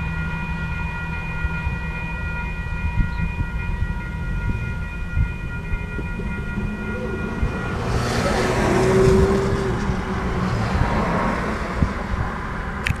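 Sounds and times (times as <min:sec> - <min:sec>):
crossing warning bell ringing: 0:00.0 - 0:12.9
car driving past: 0:06.0 - 0:12.8.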